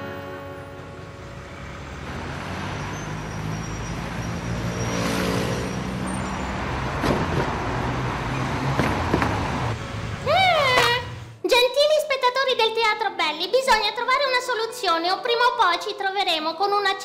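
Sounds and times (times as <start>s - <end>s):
cars passing on a road: 0.0s - 11.4s
sharp knocks: 8.7s - 9.4s.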